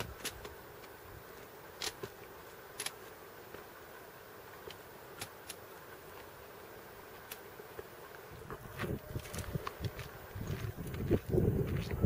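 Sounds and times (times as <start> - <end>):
poles and boots clicking on stones: 0.0 - 3.7, 4.6 - 6.3, 7.2 - 12.0
steady faint hum: 0.0 - 12.0.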